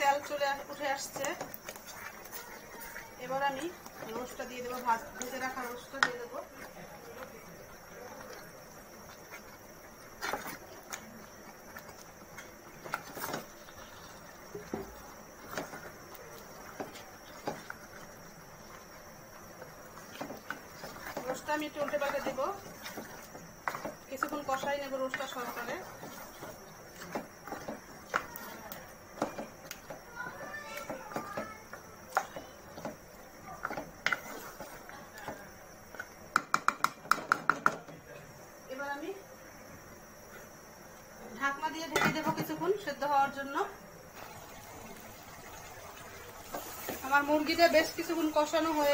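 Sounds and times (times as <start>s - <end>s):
wooden spatula scraping metal pot: 0.0s - 6.9s, 19.6s - 30.0s, 30.8s - 36.1s, 46.4s - 48.9s
low background noise: 0.0s - 48.9s
sharp ringing taps on pot: 36.3s - 37.8s
soft knocks on metal pot: 36.3s - 37.9s.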